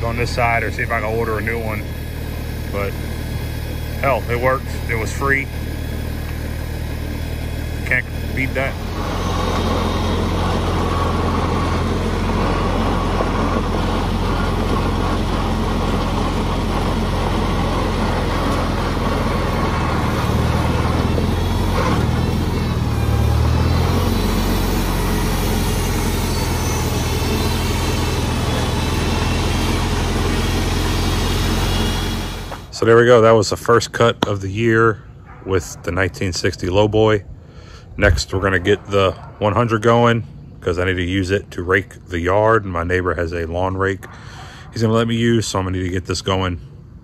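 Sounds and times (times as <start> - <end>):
tractor engine running: 0.0 - 46.3.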